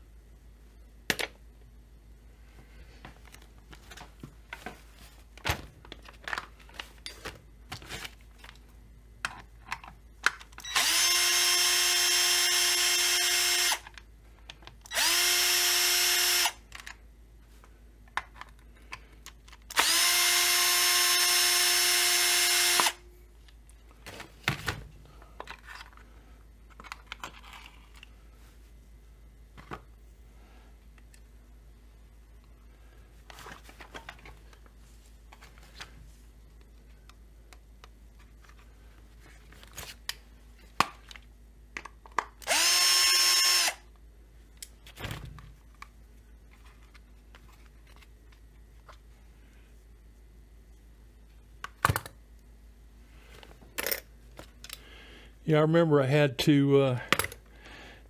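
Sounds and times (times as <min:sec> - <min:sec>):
cordless drill whining: 0:10.6 - 0:13.8, 0:14.9 - 0:16.6, 0:19.7 - 0:23.0, 0:42.4 - 0:43.9.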